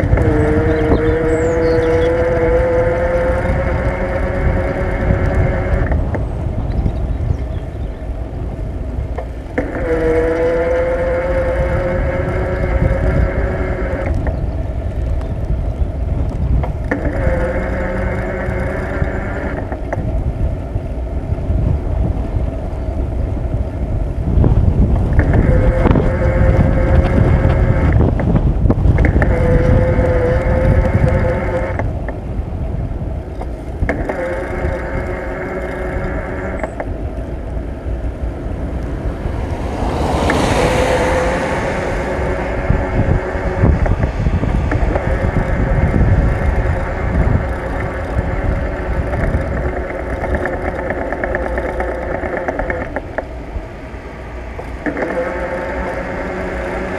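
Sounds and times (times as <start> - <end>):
steady whine: 0.0 - 56.9
wind rumbling on microphone: 0.0 - 56.9
rushing sound: 38.3 - 47.6.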